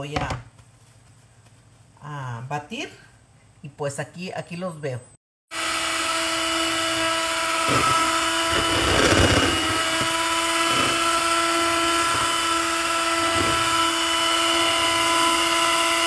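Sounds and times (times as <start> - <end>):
hand mixer motor whining: 5.5 - 16.0.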